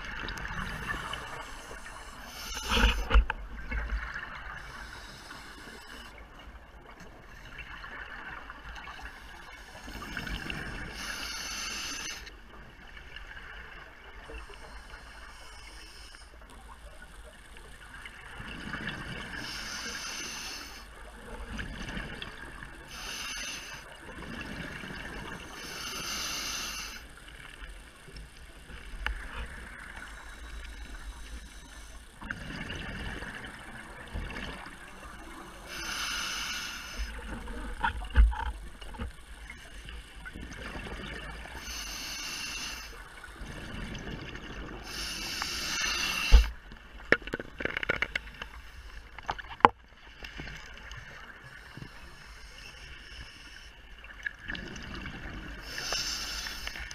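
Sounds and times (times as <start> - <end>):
diver breathing through regulator: 0.6 - 3.2, 4.5 - 6.2, 10.8 - 12.3, 19.4 - 20.9, 22.9 - 23.9, 25.4 - 27.1, 35.6 - 37.4, 41.5 - 43.0, 44.8 - 46.6, 55.6 - 56.9
low water rumble: 26.9 - 56.9.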